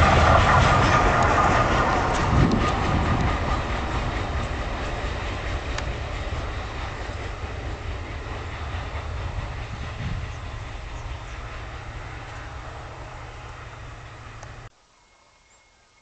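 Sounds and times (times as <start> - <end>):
sharp clicks of train wheels: 0.0 - 14.7
train wheels rumbling on rails: 0.0 - 14.7.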